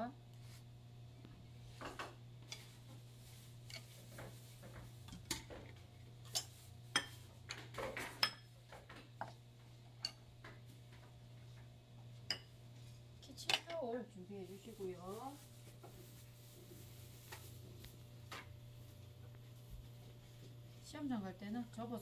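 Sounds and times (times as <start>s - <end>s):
ceramic bowls clinking and knocking: 6.2s - 8.6s, 10.0s - 10.2s, 12.2s - 12.5s.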